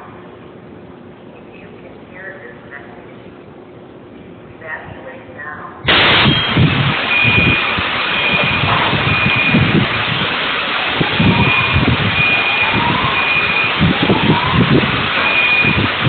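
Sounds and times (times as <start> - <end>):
explosion roar and rumble: 5.9 - 16.0
high tone beeping: 6.0 - 10.3, 10.9 - 16.0
faint rising wails: 7.1 - 16.0.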